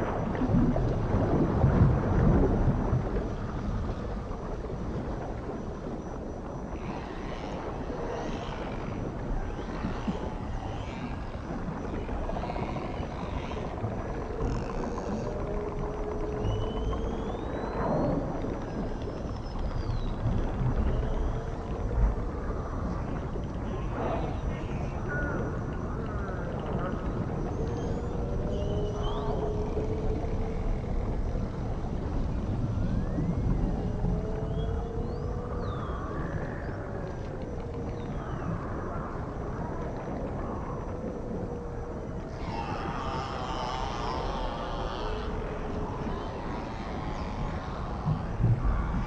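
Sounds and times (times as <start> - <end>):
low rumble of sea noise: 0.0 - 49.0
whale moan: 0.0 - 49.0
low drawn-out call: 41.5 - 49.0.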